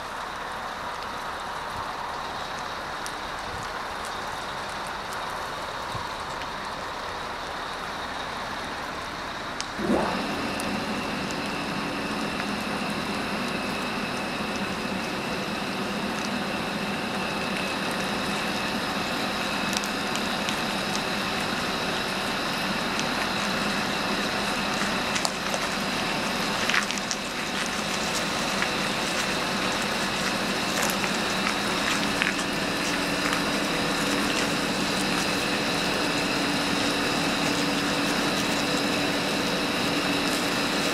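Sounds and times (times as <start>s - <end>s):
high whine: 9.6s - 40.9s.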